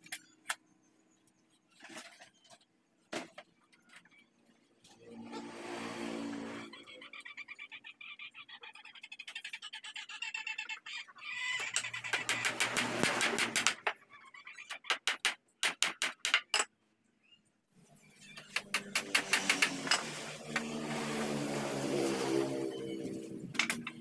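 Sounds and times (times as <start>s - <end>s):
hammer tapping wood: 12.1s - 13.8s.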